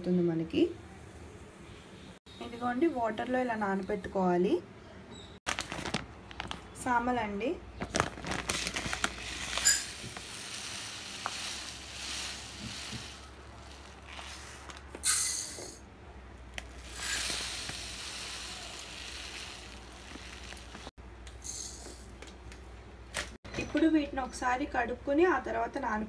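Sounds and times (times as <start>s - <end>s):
grain pouring into steel cup: 8.7s - 15.6s, 16.6s - 20.9s.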